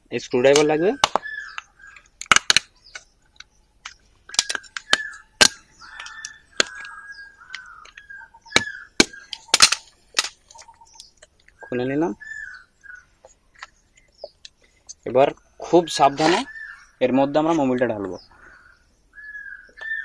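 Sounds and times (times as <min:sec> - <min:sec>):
plastic cap seal cracking: 0:03.8 - 0:06.9.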